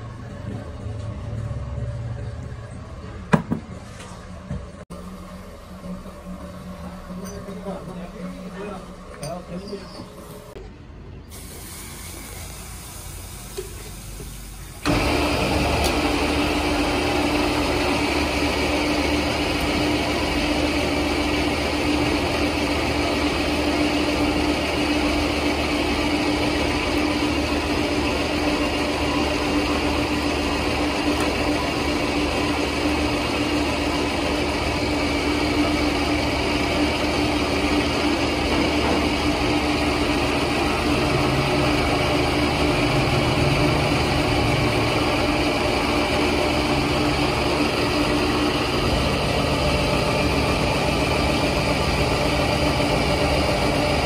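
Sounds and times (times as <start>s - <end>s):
workshop machinery humming: 0.0s - 54.0s.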